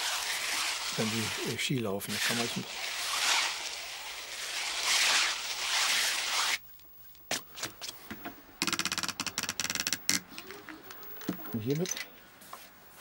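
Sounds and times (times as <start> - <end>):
scouring pad rubbing fabric: 0.0 - 6.6.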